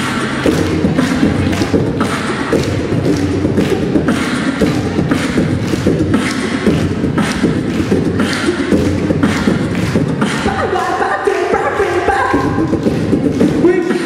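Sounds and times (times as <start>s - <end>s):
beatboxing drum beats: 0.0s - 14.0s
pitched vocal tones: 6.2s - 14.0s.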